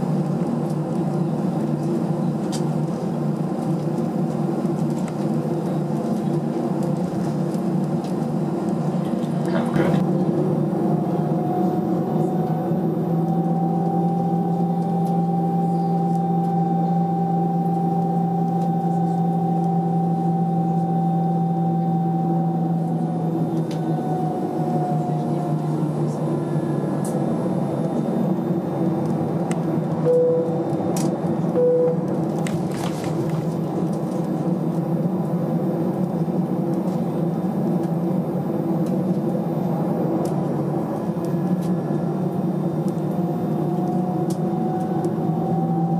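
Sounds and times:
aircraft engines humming: 0:00.0 - 0:45.9
held tone: 0:30.0 - 0:30.7, 0:31.6 - 0:32.2
short beeps: 0:30.0 - 0:30.7, 0:31.6 - 0:32.1.

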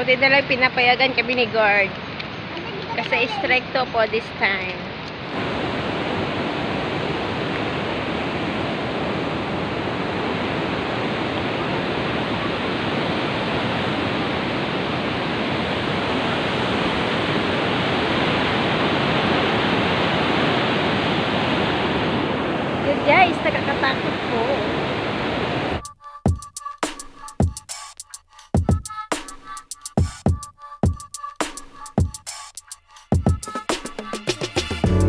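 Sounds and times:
waterfall roaring: 0:00.0 - 0:25.8.

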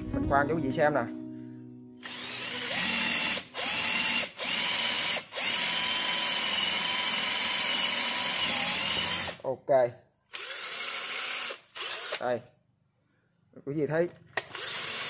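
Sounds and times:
cordless drill boring into wood: 0:02.0 - 0:09.4, 0:10.3 - 0:12.4, 0:14.4 - 0:15.0.

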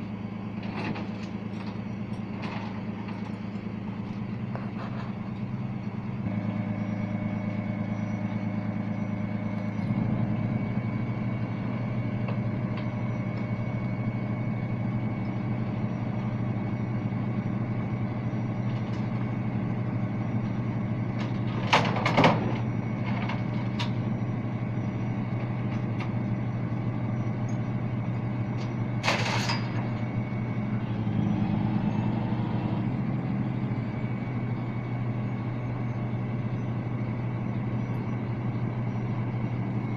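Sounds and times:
tow truck engine running: 0:00.0 - 0:39.9.

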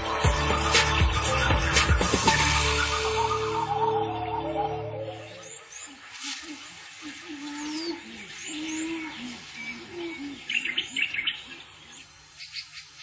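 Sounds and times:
birds cooing: 0:00.0 - 0:13.0.

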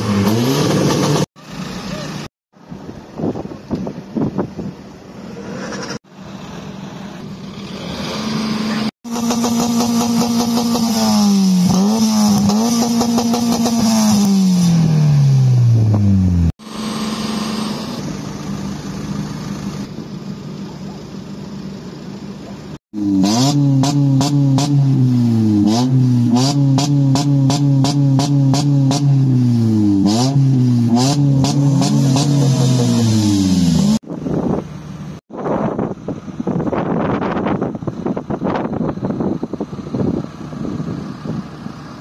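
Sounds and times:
car engine revving: 0:00.0 - 0:02.3, 0:05.2 - 0:19.3, 0:23.0 - 0:34.1.

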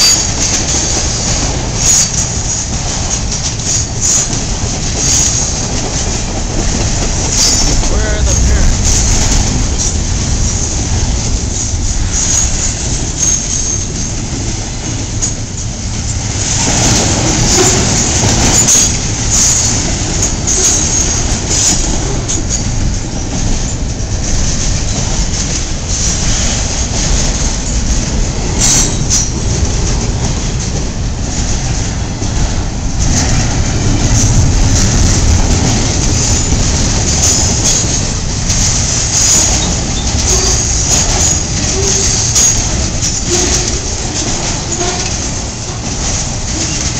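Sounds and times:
train wheels rumbling on rail: 0:00.0 - 0:46.9
wheel clicks over rail joints: 0:00.0 - 0:46.9
high wheel squeal: 0:01.2 - 0:02.7, 0:07.3 - 0:09.1.

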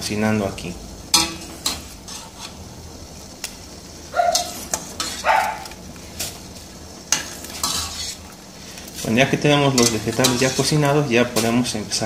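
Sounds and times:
dog barking: 0:04.1 - 0:04.6, 0:05.2 - 0:05.7
metal spoon clinking against pot: 0:09.7 - 0:10.7.

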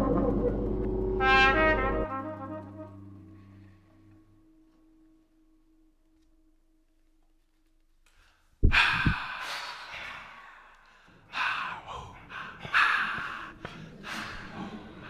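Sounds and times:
breathy gasps and exhalations: 0:08.1 - 0:15.0.

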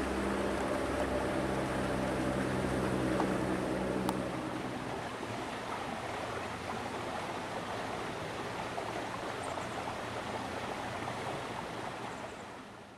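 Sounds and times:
steady rushing noise: 0:00.0 - 0:05.0.

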